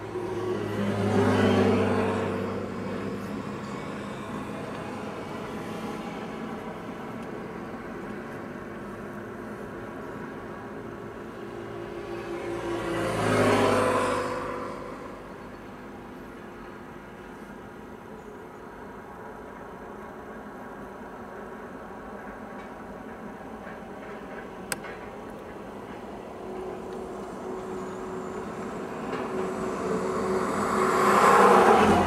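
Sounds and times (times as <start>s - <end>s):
steady low engine hum: 0.0s - 13.3s
road vehicles passing: 0.0s - 32.0s.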